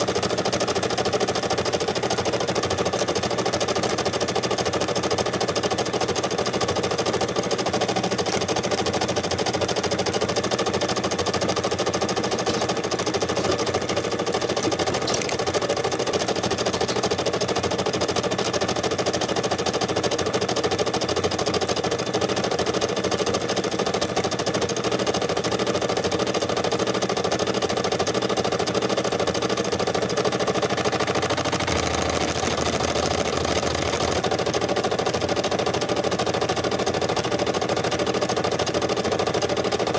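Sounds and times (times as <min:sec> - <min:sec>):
embroidery machine rattling: 0:00.0 - 0:19.6.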